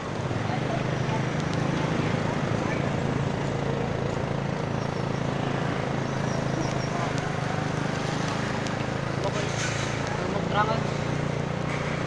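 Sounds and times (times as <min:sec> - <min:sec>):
road noise: 0:00.0 - 0:12.0
vehicle engine hum: 0:00.0 - 0:12.0.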